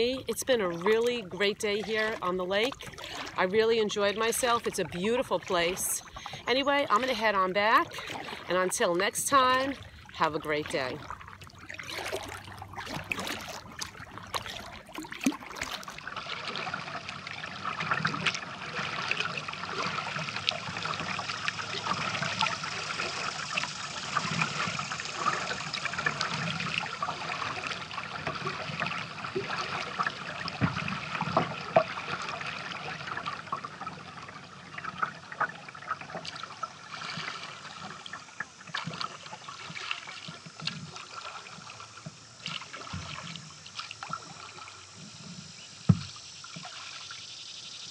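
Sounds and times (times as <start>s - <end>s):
paddle splashes: 0.0s - 47.3s
water lapping against kayak hull: 0.0s - 47.8s.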